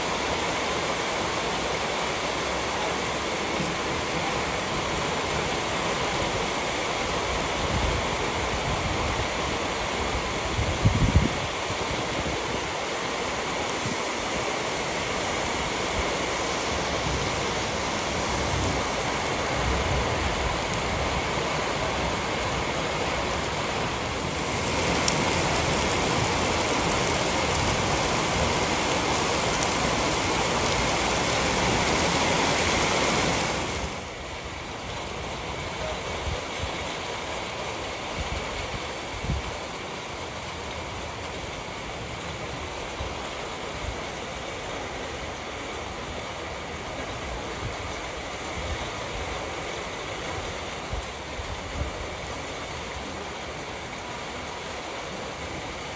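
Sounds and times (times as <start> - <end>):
heavy rain pouring: 0.0 - 55.9
low rumble of gusts: 3.6 - 12.8.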